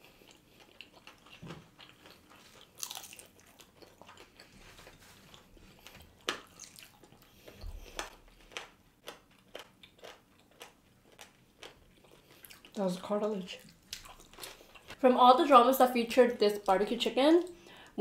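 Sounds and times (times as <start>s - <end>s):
crunchy chewing: 0.0s - 12.8s, 13.6s - 15.0s.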